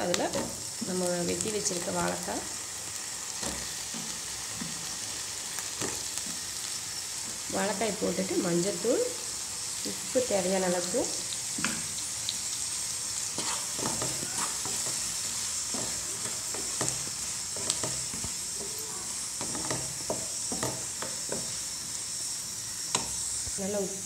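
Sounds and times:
food sizzling in oil: 0.0s - 24.0s
spatula scraping against pan: 13.3s - 18.3s.

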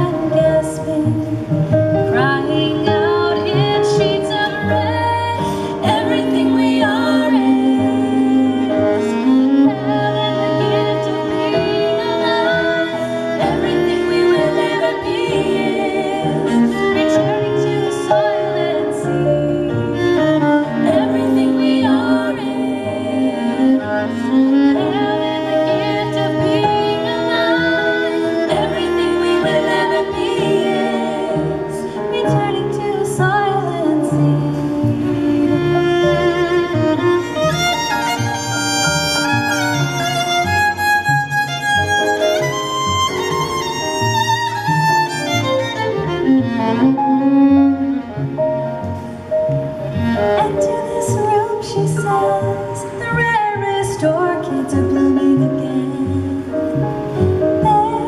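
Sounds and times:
woman singing: 0.0s - 1.5s, 2.1s - 35.4s, 50.2s - 56.7s, 57.6s - 58.0s
violin and cello playing: 0.0s - 58.0s.

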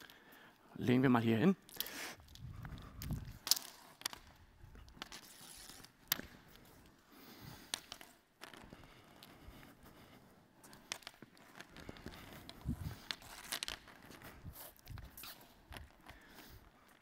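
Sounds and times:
hoops clicking and scraping: 0.0s - 17.0s.

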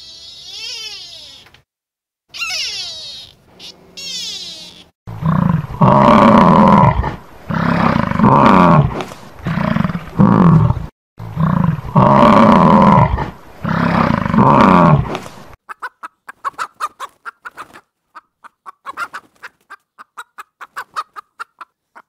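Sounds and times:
bison bellowing: 5.1s - 15.1s.

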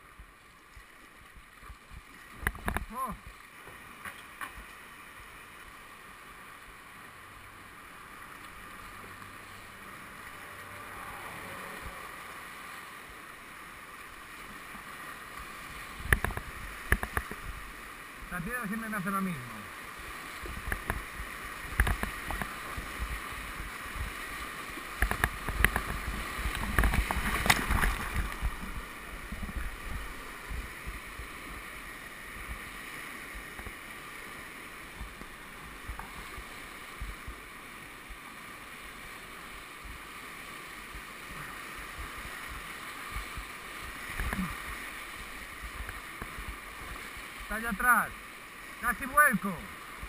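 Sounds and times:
whitewater rushing: 0.0s - 50.0s
waves hitting boat: 5.9s - 50.0s
paddle splashes and knocks: 16.0s - 17.6s, 20.4s - 24.2s, 24.8s - 30.7s.

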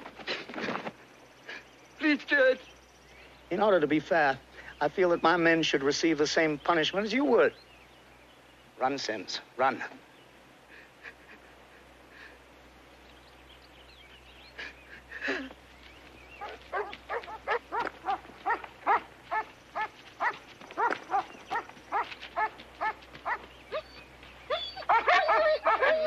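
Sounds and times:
dogs barking: 16.4s - 26.0s.

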